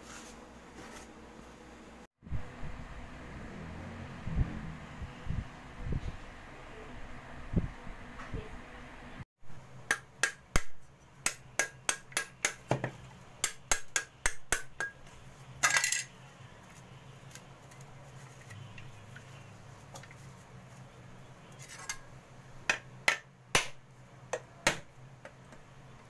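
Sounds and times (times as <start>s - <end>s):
coconut being struck: 9.8s - 15.0s, 22.7s - 25.4s.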